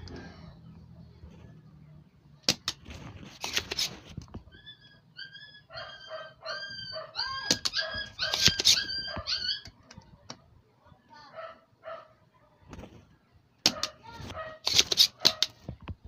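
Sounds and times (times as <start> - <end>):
sharp clicks: 2.4 - 4.0, 7.4 - 8.9, 13.6 - 14.0, 14.6 - 15.6
dog whining and yipping: 4.4 - 9.8.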